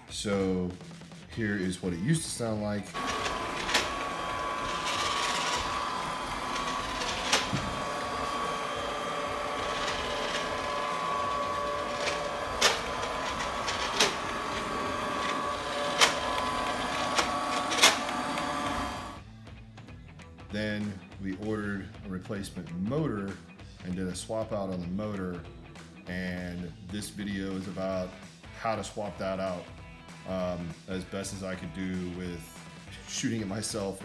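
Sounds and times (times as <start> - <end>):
robot vacuum whine and hum: 2.9 - 19.2.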